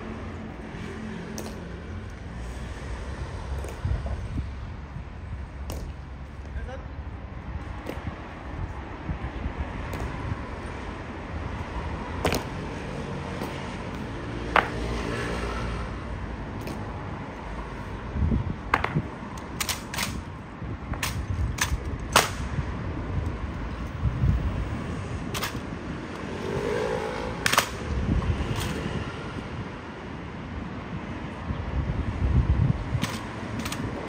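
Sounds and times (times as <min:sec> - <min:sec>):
steady low rumble: 0:00.0 - 0:14.8
rifles striking and slapped: 0:01.3 - 0:01.6, 0:05.6 - 0:06.0, 0:12.2 - 0:12.6, 0:18.7 - 0:20.3, 0:20.9 - 0:22.5, 0:25.3 - 0:25.7, 0:27.4 - 0:27.8, 0:33.0 - 0:34.0
boots stamping: 0:12.2 - 0:12.6, 0:13.3 - 0:14.8.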